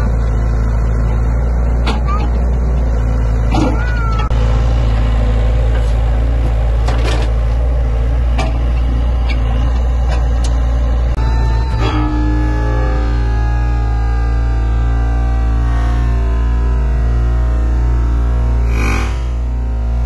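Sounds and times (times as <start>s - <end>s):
excavator diesel engine droning: 0.0s - 20.0s.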